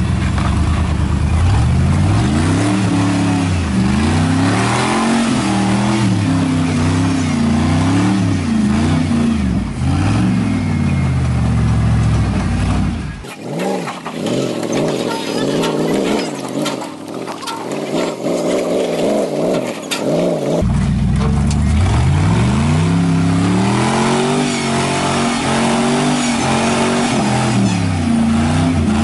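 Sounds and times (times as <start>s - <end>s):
pickup engine revving hard: 1.5s - 11.1s, 21.6s - 29.0s.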